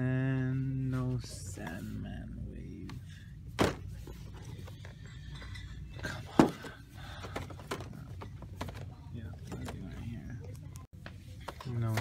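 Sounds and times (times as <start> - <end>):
low background hum: 0.0 - 12.0
boxed packages being handled: 6.0 - 10.1.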